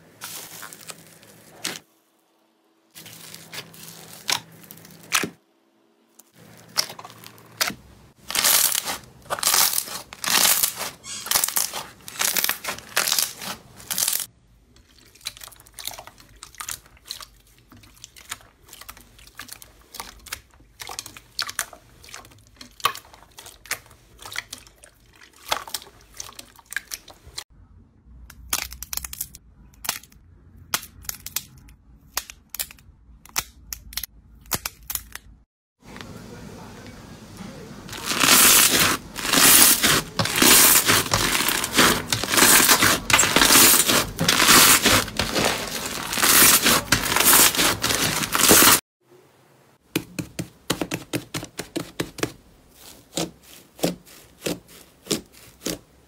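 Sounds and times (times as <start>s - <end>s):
slime crackling and popping: 6.3s - 14.3s, 37.9s - 48.8s.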